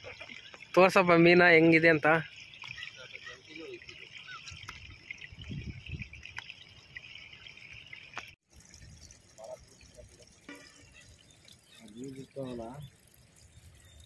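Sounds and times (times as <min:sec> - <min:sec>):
river water running: 0:00.0 - 0:14.0.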